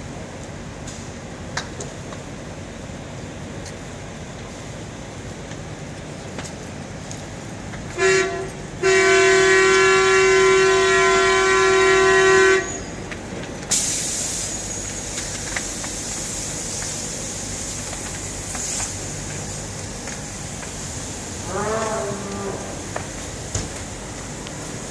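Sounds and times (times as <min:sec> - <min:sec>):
air horn blasts: 0:08.0 - 0:12.8
loud hiss: 0:13.7 - 0:24.9.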